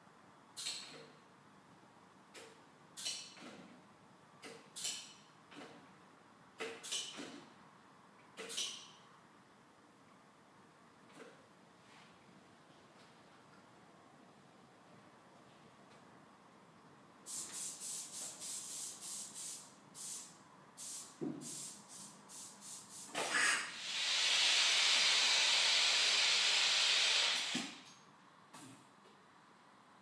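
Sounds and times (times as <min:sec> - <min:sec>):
loud steady air hiss: 0:17.2 - 0:28.0
short compressed air hisses: 0:17.3 - 0:27.9.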